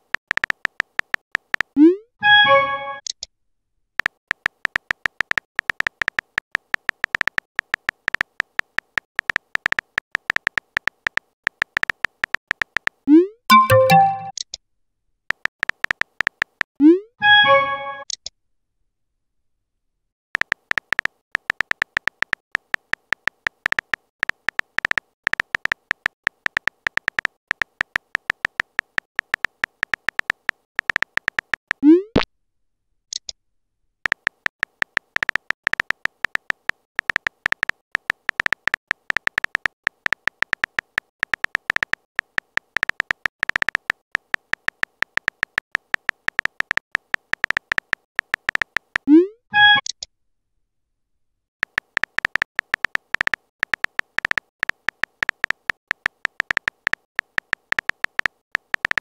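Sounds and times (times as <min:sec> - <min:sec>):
phone keyboard typing ticks: 0:00.0 - 0:01.9, 0:04.0 - 0:14.5, 0:15.3 - 0:16.7, 0:20.4 - 0:31.9, 0:34.0 - 0:50.0, 0:51.6 - 0:59.0
message sent pop: 0:13.5 - 0:14.4.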